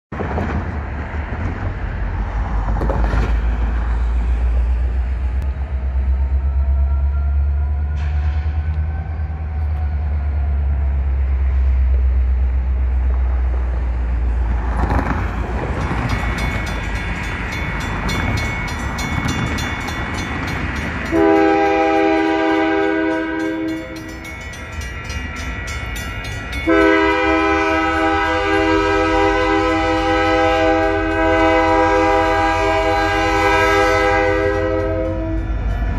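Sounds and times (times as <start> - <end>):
crossing warning bells ringing: 14.2 - 35.9
locomotive air horn blast: 21.1 - 24.0, 26.6 - 35.6.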